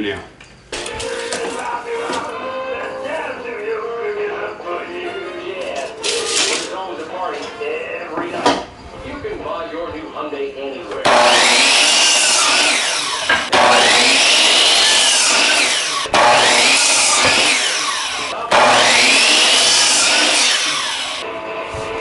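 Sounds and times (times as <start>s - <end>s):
miter saw cutting wood: 11.0s - 21.2s.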